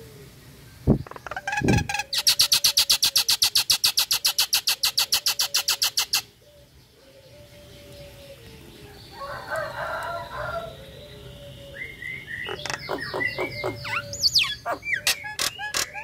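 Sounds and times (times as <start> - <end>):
bird chattering call: 1.0 - 6.3, 12.3 - 16.0.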